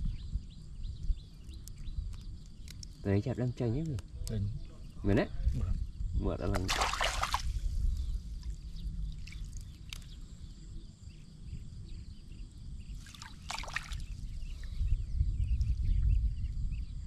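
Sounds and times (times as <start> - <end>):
water trickling and splashing: 6.5 - 10.1, 13.0 - 14.2.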